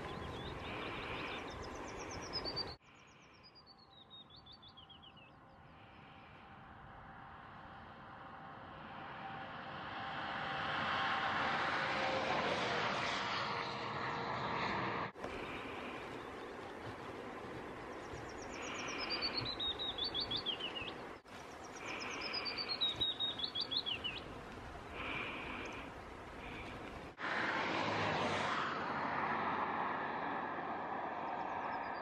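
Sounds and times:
road traffic rushing: 0.0s - 2.8s, 6.8s - 31.9s
small songbird singing: 0.0s - 5.5s, 15.2s - 24.4s.

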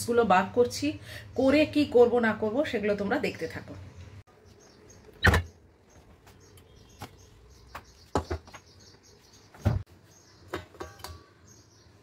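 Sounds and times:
knocks and clunks: 9.5s - 11.2s.

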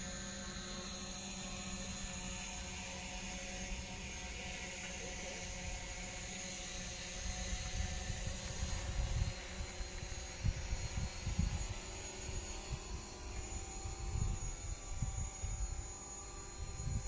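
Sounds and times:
faint hum: 0.0s - 17.0s
thin high whine: 0.0s - 17.0s
wind buffeting microphone: 7.7s - 11.9s, 16.6s - 17.0s.

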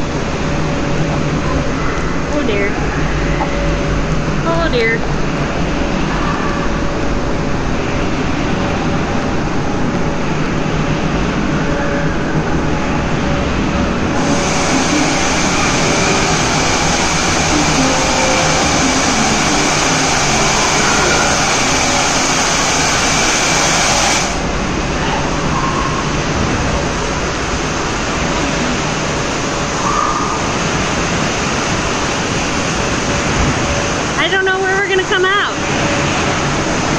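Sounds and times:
water rushing and splashing: 13.9s - 36.9s
bright hiss: 14.2s - 24.5s.

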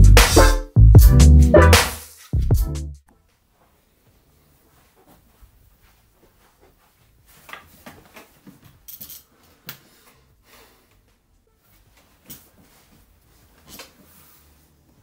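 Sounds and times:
clothing rustling: 3.2s - 15.0s.

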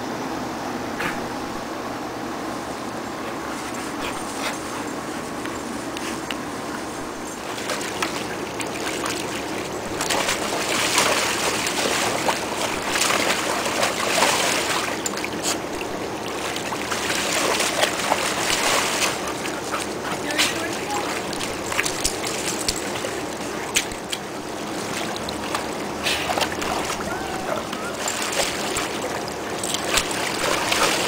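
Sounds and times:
dog splashing in water: 6.8s - 31.0s.

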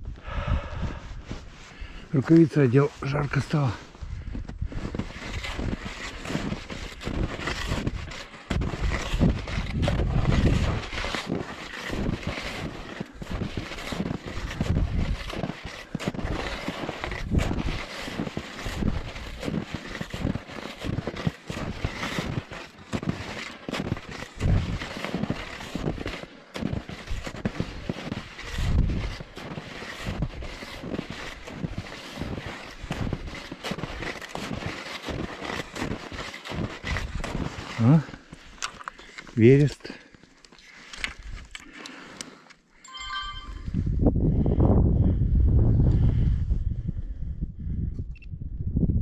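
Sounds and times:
skis and boots scuffing snow: 0.9s - 41.1s
wind buffeting microphone: 43.6s - 49.0s.

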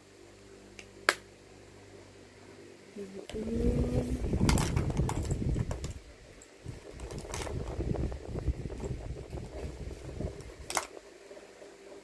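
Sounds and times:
handling and rustling noises: 4.0s - 11.0s.

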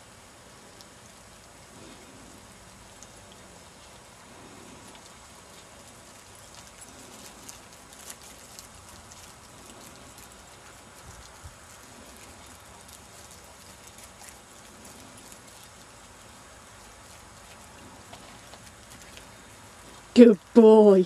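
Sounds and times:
steady hiss: 0.0s - 21.0s
footsteps crackling through dry stubble: 3.8s - 20.1s.

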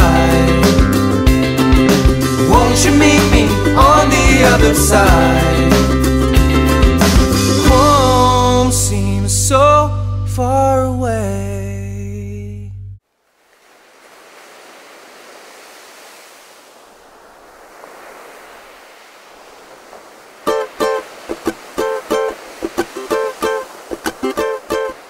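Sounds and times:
plucked-string music: 0.0s - 9.0s, 20.5s - 25.0s
soft rushing noise: 13.2s - 25.0s.

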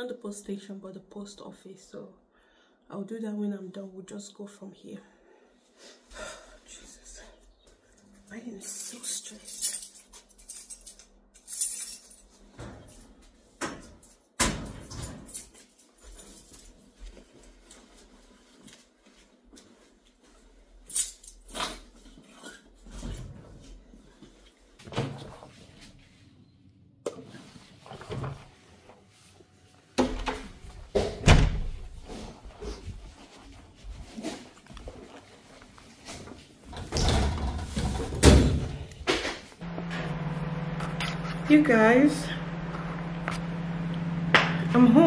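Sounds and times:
door banging shut: 30.0s - 31.8s, 36.8s - 39.3s
rustling: 31.8s - 36.7s.

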